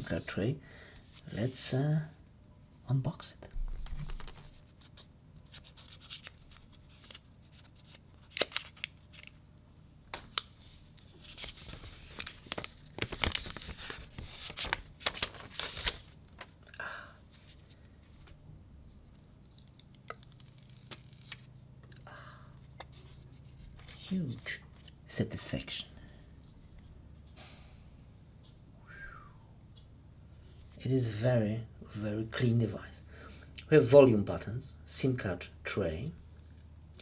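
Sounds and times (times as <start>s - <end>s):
plastic film peeling and tearing: 5.5s - 9.4s, 10.4s - 16.5s, 19.5s - 21.5s.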